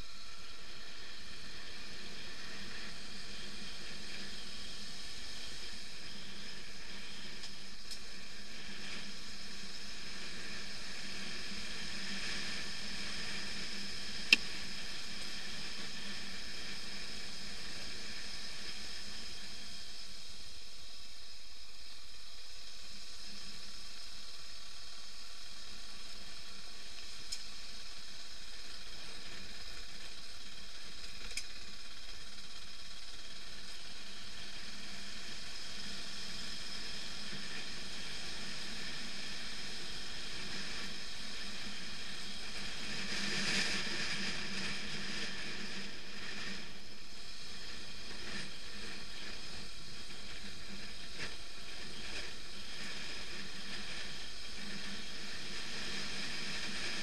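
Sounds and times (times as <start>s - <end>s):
faint motorcycle engine hum: 0.0s - 57.0s
steady hiss of riding on gravel: 0.0s - 57.0s
small clicks: 31.0s - 31.6s.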